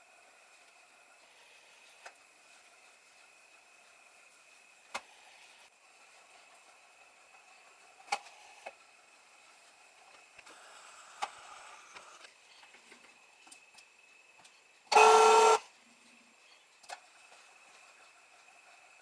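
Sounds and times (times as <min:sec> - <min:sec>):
mill table whirring and clicking: 0:00.0 - 0:19.0.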